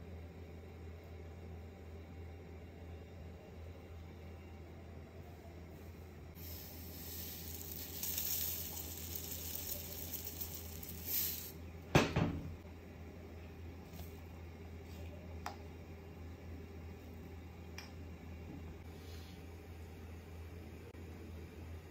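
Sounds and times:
low steady hum: 0.0 - 21.9
salt pouring hiss: 6.4 - 11.6.

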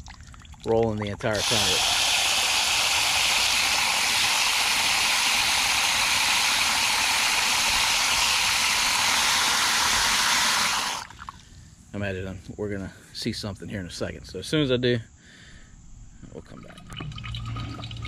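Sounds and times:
hose spray splashing into can: 1.2 - 11.4.

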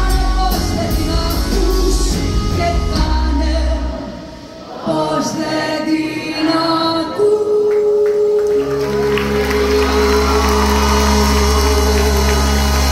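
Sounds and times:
bass guitar: 0.0 - 4.2, 8.6 - 12.9.

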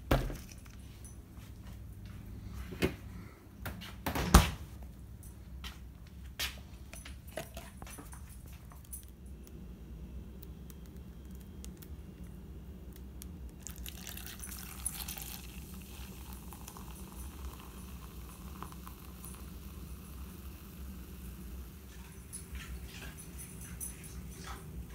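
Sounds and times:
low steady hum: 0.0 - 24.9
soda fizzing into cup: 13.6 - 22.2.

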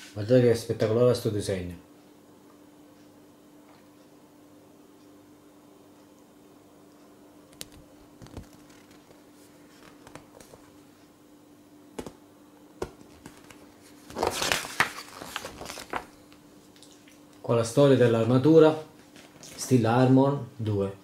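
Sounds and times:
magazine pages tapping and clicking: 7.6 - 9.2, 9.8 - 10.6, 12.0 - 12.2, 12.8 - 16.4
magazine pages rustling: 8.2 - 10.6, 12.9 - 16.4.

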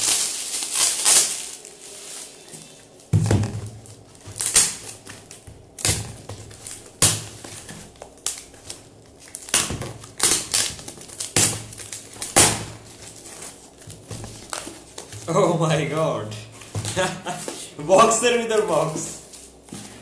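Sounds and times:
packing tape ripping: 0.0 - 2.4, 3.0 - 15.3
cardboard scraping: 12.6 - 15.5.

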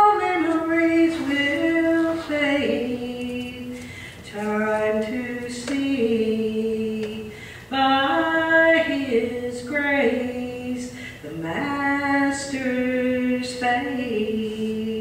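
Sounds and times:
person singing gospel song: 0.0 - 15.0
singer breathing: 3.8 - 4.3, 7.3 - 7.7, 10.9 - 11.3.

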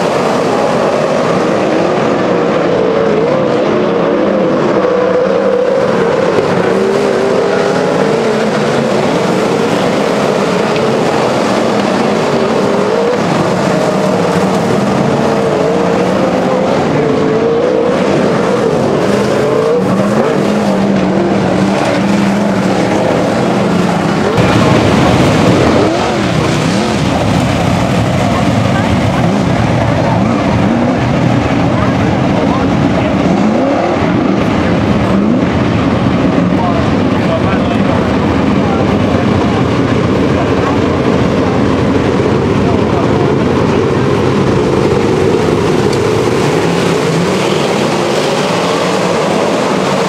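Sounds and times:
race car engines running: 0.0 - 50.0.

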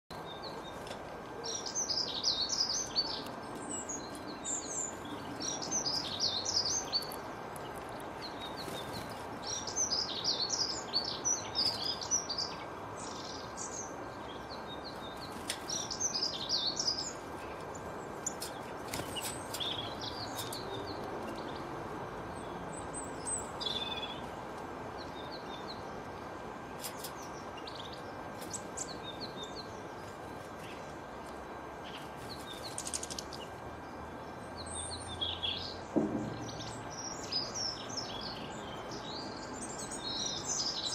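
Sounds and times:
small songbird twittering: 1.4 - 21.6.

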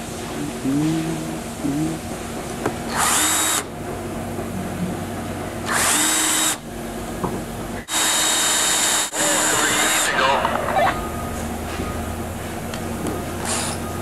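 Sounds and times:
power drill drilling: 2.9 - 3.7, 5.7 - 6.6, 7.9 - 10.1, 13.4 - 13.8.

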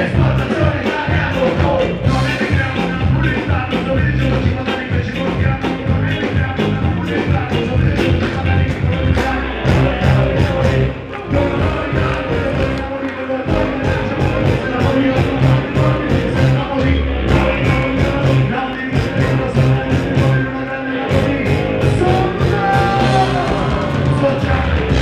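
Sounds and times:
fast steady drumbeat: 0.0 - 12.8, 13.5 - 20.5, 21.1 - 25.0
electric guitar: 0.0 - 25.0
person singing into a microphone: 0.0 - 25.0.

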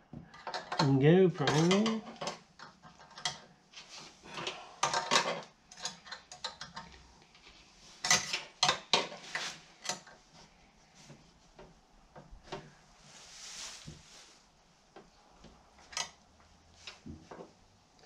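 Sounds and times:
spanner clinking on metal: 0.4 - 3.5.

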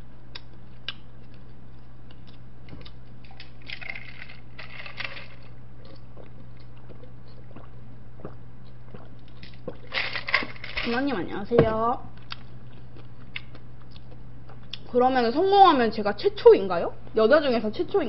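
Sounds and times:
steady low hum: 0.0 - 18.0
chewing: 0.3 - 10.4, 12.2 - 14.9
sipping and swallowing: 5.8 - 10.5.

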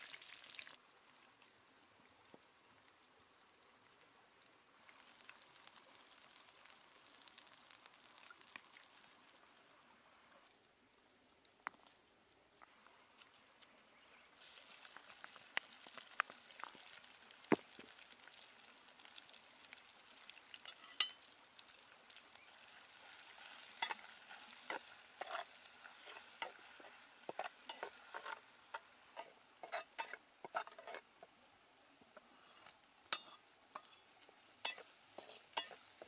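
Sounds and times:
chilies sizzling in oil: 0.0 - 36.0
spatula scraping a pot: 23.4 - 31.3, 32.4 - 36.0.

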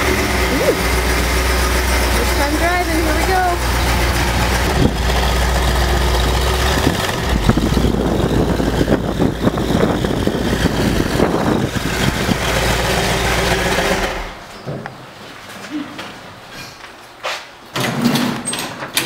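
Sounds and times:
car engine exhaust rumble: 0.0 - 14.5.

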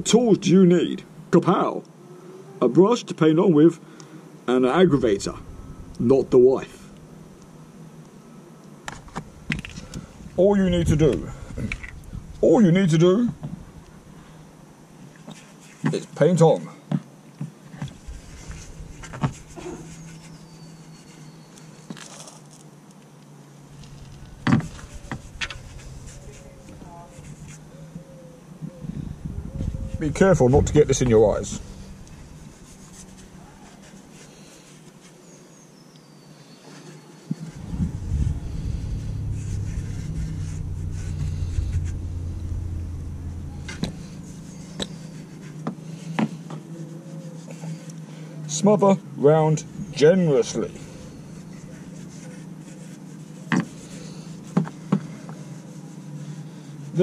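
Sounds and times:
vehicle engine rumble: 0.8 - 1.3, 4.5 - 8.1, 8.8 - 15.2, 17.8 - 22.6, 23.4 - 35.0, 37.3 - 57.0
low steady hum: 4.6 - 15.0, 17.8 - 21.5, 23.6 - 35.0, 37.4 - 48.4, 49.0 - 54.6.

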